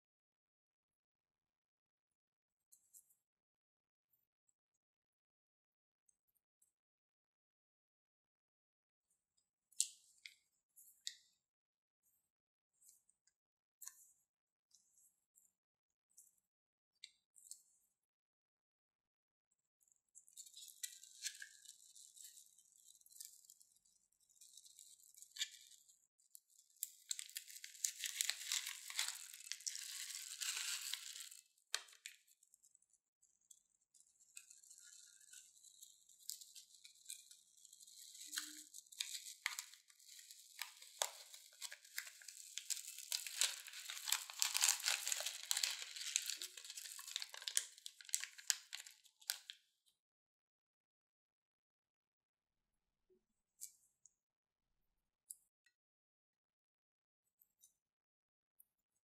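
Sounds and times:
foam beads rattling in plastic bag: 0:26.9 - 0:31.5, 0:34.8 - 0:49.5.

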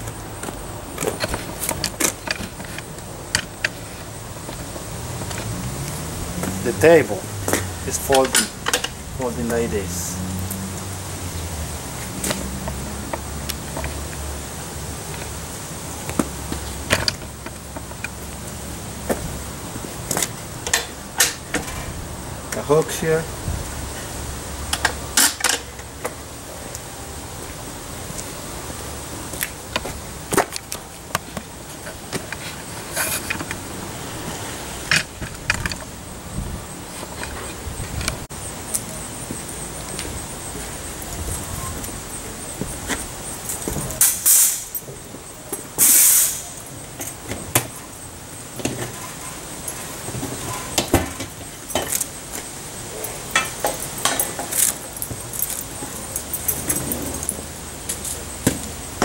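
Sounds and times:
steady background hiss: 0:00.0 - 0:59.0
metallic clinks and rattles: 0:53.0 - 0:58.3.

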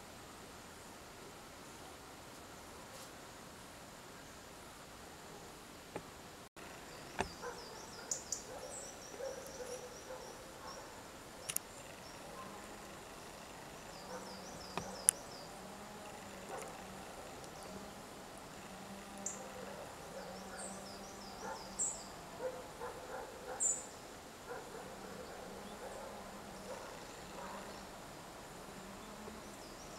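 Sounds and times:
woodpecker tapping: 0:07.0 - 0:07.8.

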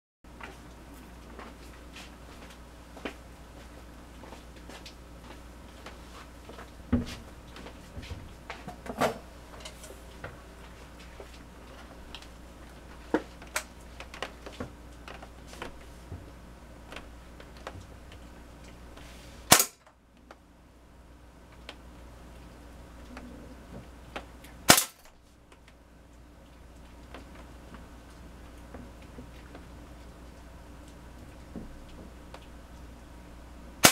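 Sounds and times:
rifle shot: 0:19.5 - 0:19.8, 0:24.7 - 0:25.1.

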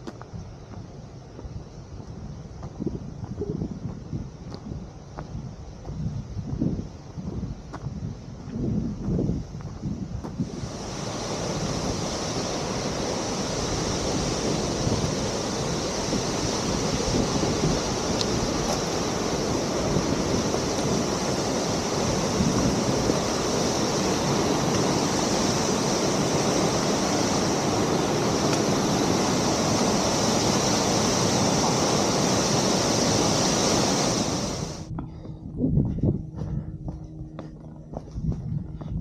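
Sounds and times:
falling water rushing: 0:10.4 - 0:34.9.

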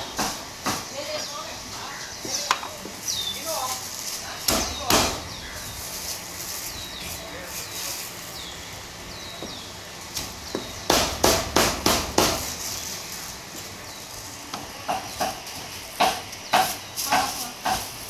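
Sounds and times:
cleaver chopping on wooden board: 0:04.5 - 0:05.2, 0:10.5 - 0:12.5.

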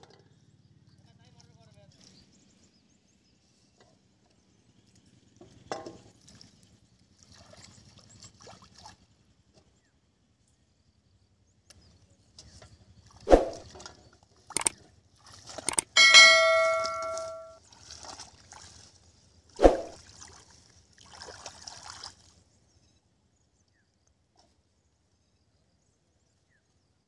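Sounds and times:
metal basin clanging: 0:15.7 - 0:17.6.

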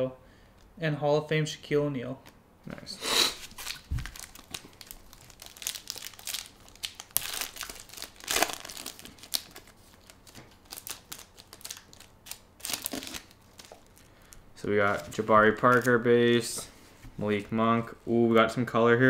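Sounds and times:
foil wrappers tearing and crinkling: 0:03.4 - 0:16.0.

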